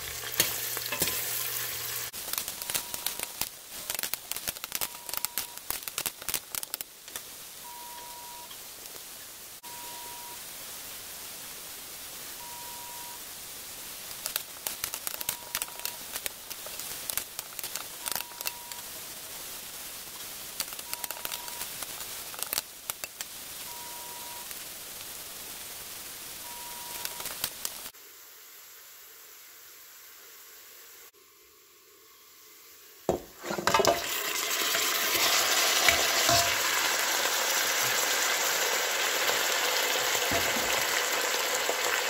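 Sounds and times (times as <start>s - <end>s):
onions sizzling in hot oil: 0.0s - 9.4s, 10.9s - 30.2s, 32.4s - 42.0s
crackling of frying: 0.0s - 9.6s, 13.2s - 28.0s, 32.9s - 42.0s.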